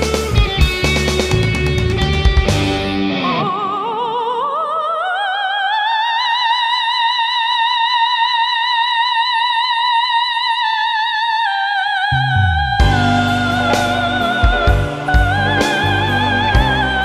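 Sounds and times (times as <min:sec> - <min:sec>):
soprano singing high note: 0:12.0 - 0:17.0.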